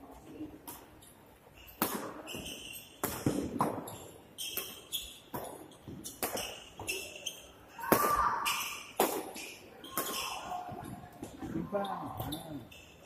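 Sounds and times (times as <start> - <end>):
shoes squeaking on court: 0.1 - 13.0
racquets striking shuttlecock: 1.6 - 11.3.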